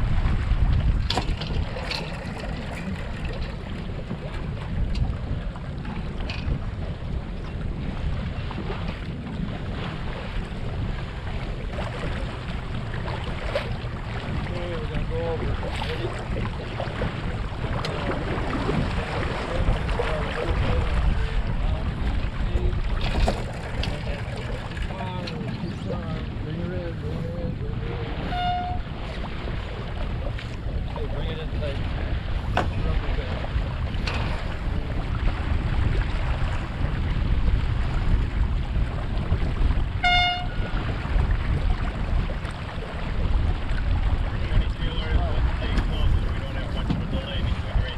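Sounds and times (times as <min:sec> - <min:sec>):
water rushing along hull: 0:00.0 - 0:47.9
wind rumbling on microphone: 0:00.0 - 0:47.9
short horn blast: 0:28.2 - 0:28.9, 0:40.0 - 0:40.8.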